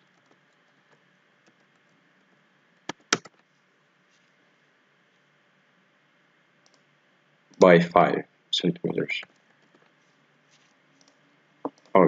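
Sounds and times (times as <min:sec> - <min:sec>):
faint steady hiss: 0:00.0 - 0:12.0
computer mouse clicks: 0:02.9 - 0:03.4, 0:06.6 - 0:06.9, 0:11.0 - 0:12.0.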